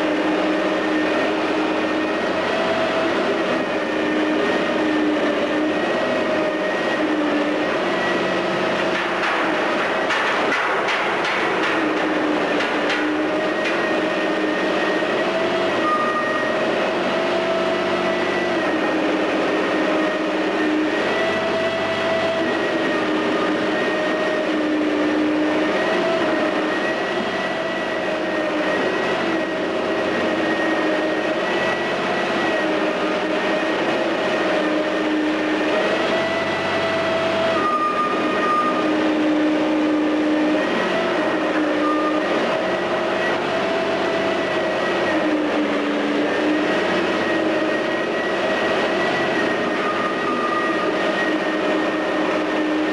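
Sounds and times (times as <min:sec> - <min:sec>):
excavator diesel engine running: 0:00.0 - 0:52.9
rumbling demolition noise: 0:01.8 - 0:17.1.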